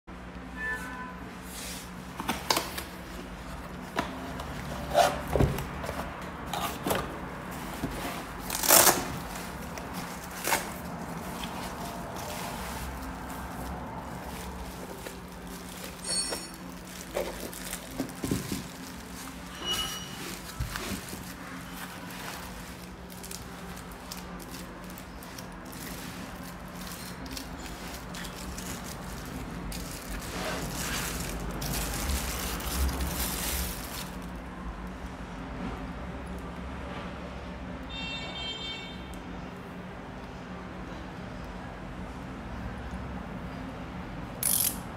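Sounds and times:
plastic wrappers crinkling: 2.1 - 34.5
cardboard box rustling: 2.2 - 34.2
tools clicking and knocking: 44.4 - 44.8.

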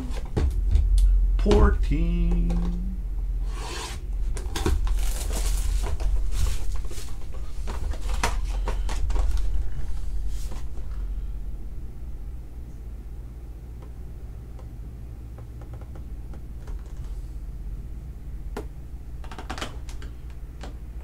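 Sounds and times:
cardboard and plastic wrap scraping: 3.4 - 10.8.

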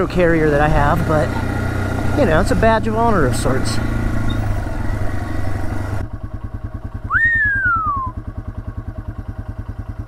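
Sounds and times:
motorcycle engine idling: 0.0 - 10.0
whistle-like note: 7.1 - 8.2.

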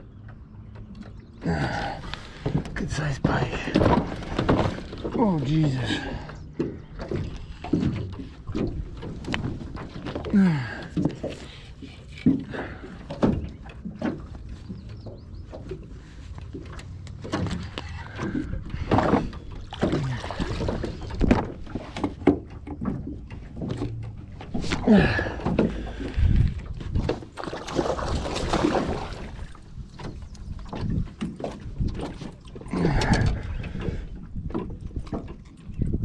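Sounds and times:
knocks and bumps in boat: 0.1 - 36.0
fish thrashing and splashing: 15.5 - 35.4.

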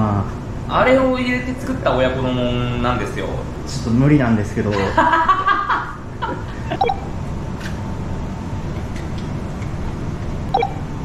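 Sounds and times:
man laughing: 4.7 - 6.8.

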